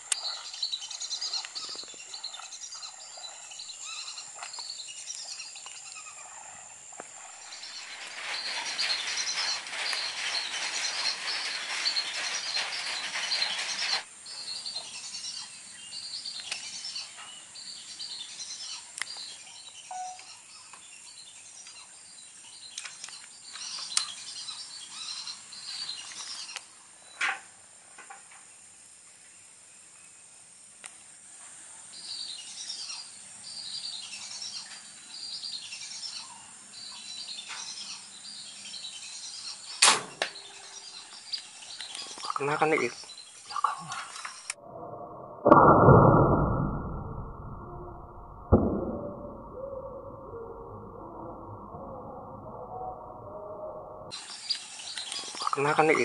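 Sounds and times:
birds chirping: 0.0s - 26.7s, 32.0s - 44.6s, 49.0s - 56.0s
sharp crack: 39.8s - 40.4s, 45.4s - 49.6s.

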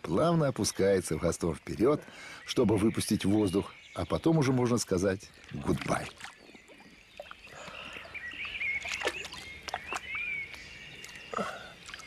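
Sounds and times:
water splashing and sloshing: 5.2s - 12.0s.

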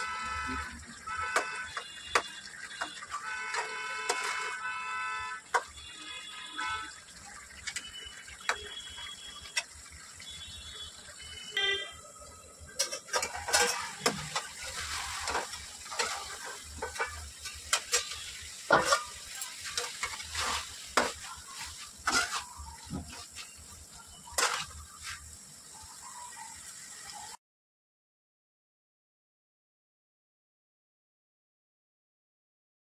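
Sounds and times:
vegetables sizzling: 0.0s - 4.7s, 5.4s - 27.4s
metal spatula scraping a pan: 1.4s - 4.8s, 12.7s - 25.4s.

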